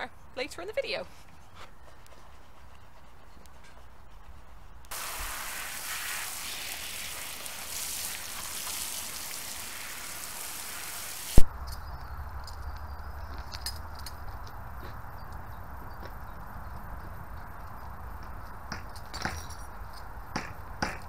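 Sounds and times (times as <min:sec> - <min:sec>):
hose spraying water: 0:04.9 - 0:11.4.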